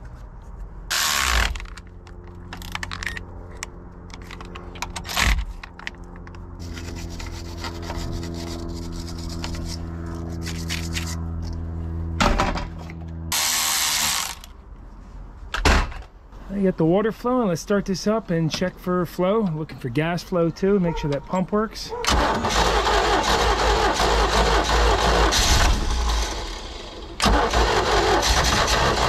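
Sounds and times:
steady low hum: 0.0s - 22.1s.

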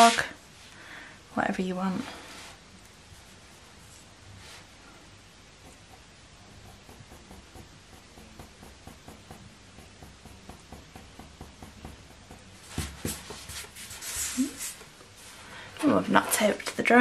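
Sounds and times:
pencil scratching on paper: 5.6s - 14.8s
brushing rubs on paper: 5.6s - 15.3s.

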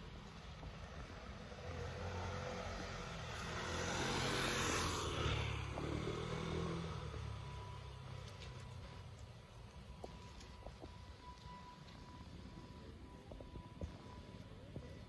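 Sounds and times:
vehicle passing by: 0.6s - 9.2s.

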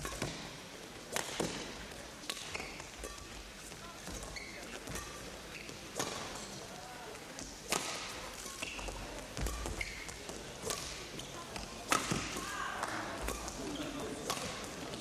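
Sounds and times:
racket striking shuttlecock: 0.0s - 0.4s, 1.1s - 3.3s, 4.8s - 6.4s, 7.7s - 8.8s, 9.4s - 11.0s, 11.6s - 13.6s, 14.2s - 14.9s
low crowd murmur: 0.0s - 15.0s
shoes squeaking on court: 2.4s - 6.5s, 8.4s - 12.0s, 13.2s - 15.0s.

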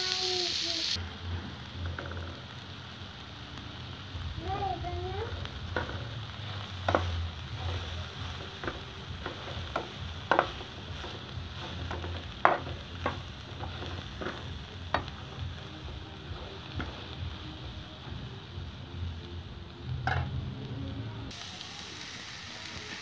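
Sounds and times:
vegetables sizzling in a pan: 0.0s - 23.0s
metal spatula scraping a pan: 6.9s - 15.2s.

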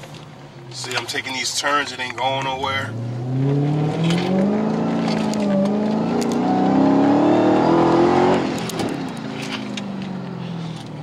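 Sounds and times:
car engine accelerating: 2.4s - 11.0s.

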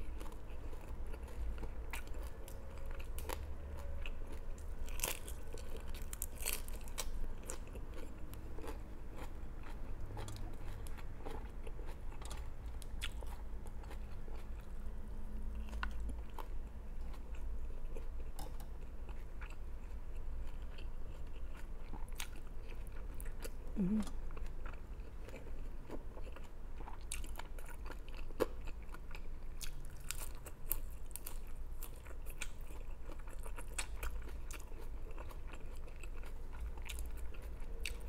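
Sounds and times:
person chewing food: 0.0s - 38.0s.

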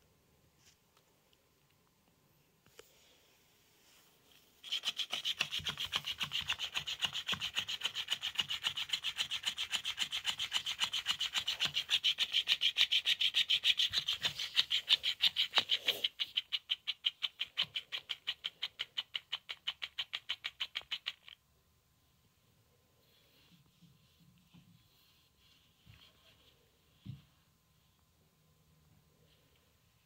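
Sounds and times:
toy fish tail flapping: 4.6s - 21.4s.

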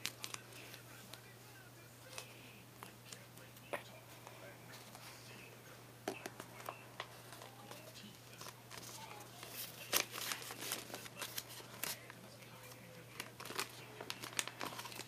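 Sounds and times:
paper and tape rustling: 0.0s - 1.2s, 6.5s - 15.0s
low steady hum: 0.0s - 15.0s.

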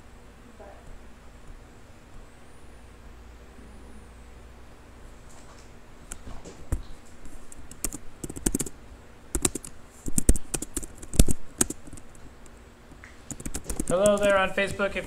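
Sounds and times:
computer keyboard typing: 7.6s - 8.7s, 9.3s - 12.2s, 13.3s - 14.4s.

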